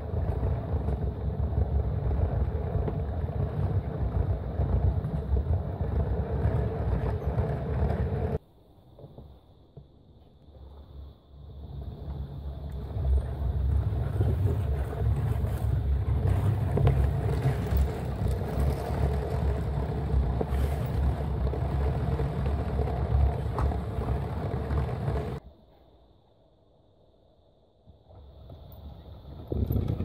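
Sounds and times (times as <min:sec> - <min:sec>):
toy train rumbling on track: 0:00.0 - 0:08.4, 0:11.6 - 0:25.4.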